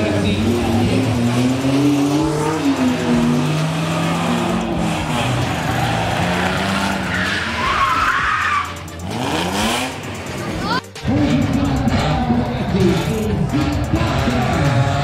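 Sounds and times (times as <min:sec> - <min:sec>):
car engines revving high: 0:00.0 - 0:15.0
tyres squealing: 0:02.5 - 0:09.3.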